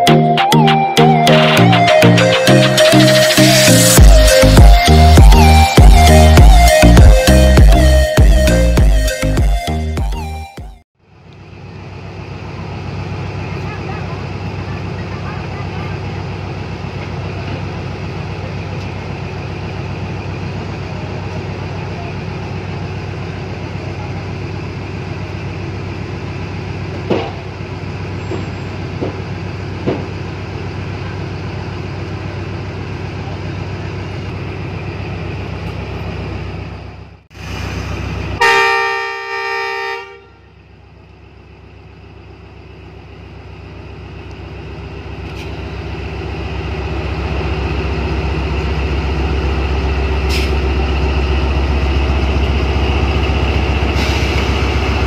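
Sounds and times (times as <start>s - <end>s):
diesel locomotive engine: 0.0s - 55.0s
locomotive air horn blast: 38.4s - 40.6s.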